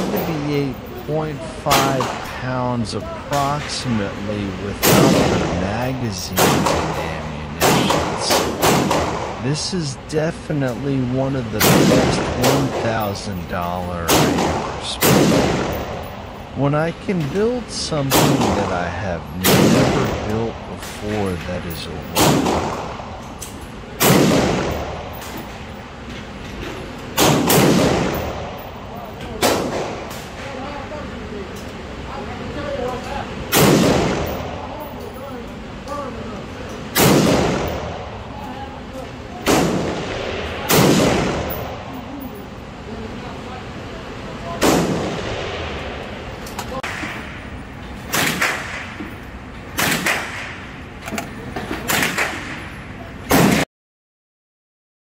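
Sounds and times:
loud gunshots echoing: 0:00.0 - 0:23.2, 0:24.0 - 0:25.3, 0:27.2 - 0:30.2, 0:33.5 - 0:34.7, 0:36.9 - 0:38.3, 0:39.4 - 0:42.0, 0:44.5 - 0:46.0, 0:48.1 - 0:49.0, 0:49.8 - 0:50.7, 0:51.9 - 0:52.6, 0:53.3 - 0:53.6
rifle shot echoing: 0:04.8 - 0:05.6, 0:06.4 - 0:09.4, 0:11.6 - 0:13.1, 0:14.1 - 0:16.1, 0:19.4 - 0:20.3, 0:24.0 - 0:25.2, 0:27.2 - 0:28.6, 0:37.0 - 0:38.0, 0:39.4 - 0:41.8.

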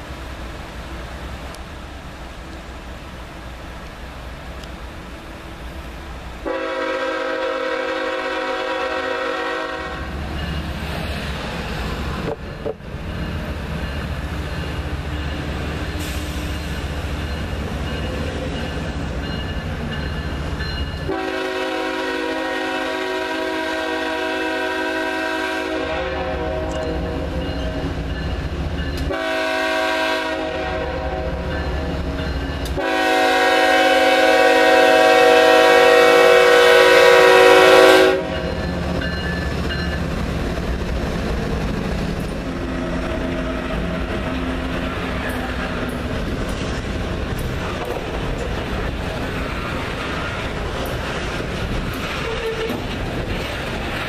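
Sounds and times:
locomotive air horn blasts: 0:06.4 - 0:10.2, 0:21.0 - 0:27.4, 0:29.1 - 0:31.5, 0:32.7 - 0:38.5.

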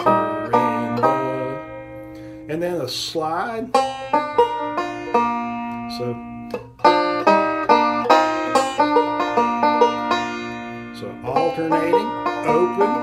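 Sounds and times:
banjo picking: 0:00.0 - 0:13.0.

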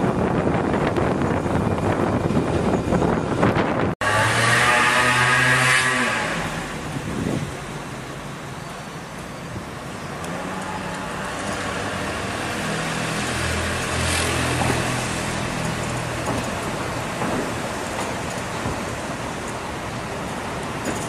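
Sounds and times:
tram rolling on track: 0:00.0 - 0:04.0, 0:06.0 - 0:21.0.

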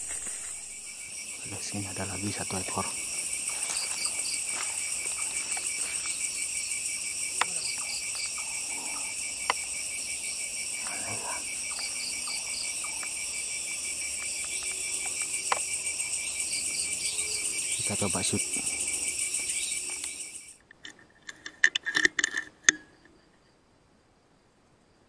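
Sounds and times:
soft rustle: 0:00.0 - 0:00.9
crickets and insects trilling: 0:00.0 - 0:21.0.

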